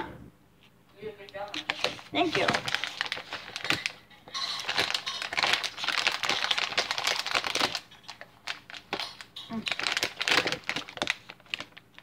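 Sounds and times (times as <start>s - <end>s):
plastic bag crinkling: 1.5s - 12.0s.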